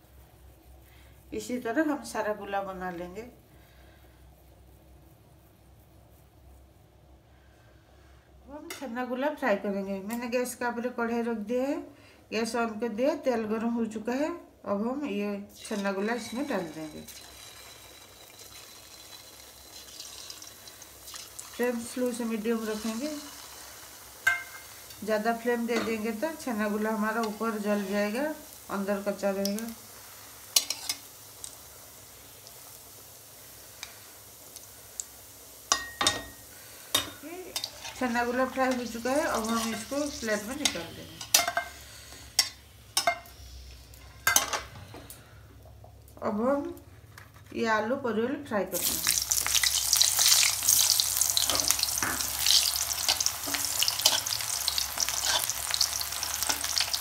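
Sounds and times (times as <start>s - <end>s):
oil sizzling with small pops: 15.5s - 47.2s, 48.7s - 57.0s.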